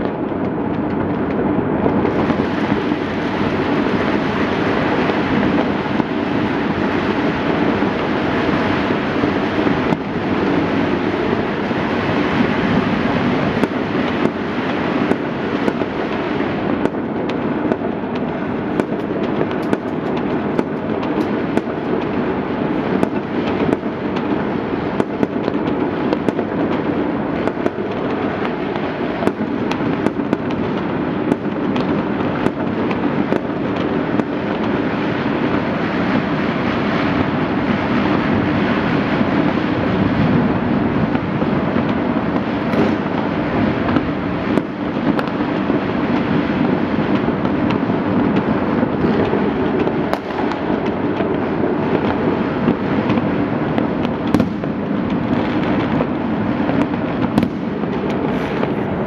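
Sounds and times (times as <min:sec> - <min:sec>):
firecrackers crackling and banging: 0:00.0 - 0:59.0.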